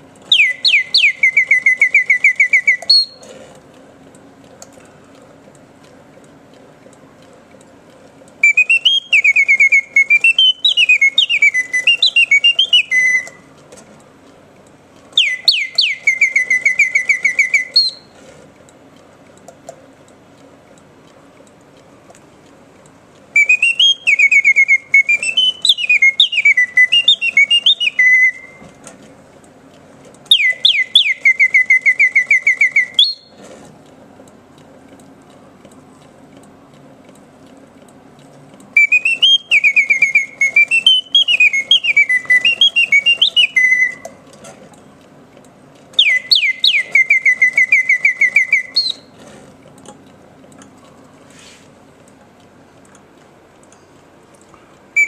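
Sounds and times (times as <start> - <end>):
mechanical bird whistling song: 0.2 - 3.3, 8.4 - 13.5, 15.1 - 18.2, 23.3 - 28.7, 30.3 - 33.4, 38.7 - 44.2, 45.9 - 49.2.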